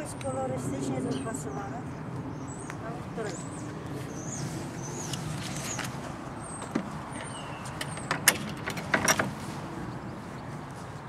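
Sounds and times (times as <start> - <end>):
sharp clicks and rustles: 4.8 - 10.0.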